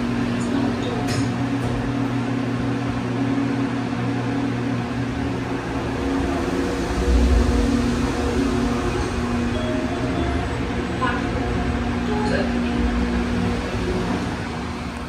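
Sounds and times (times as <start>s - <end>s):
mechanical hum: 0.0s - 15.0s
deep rumble: 3.8s - 15.0s.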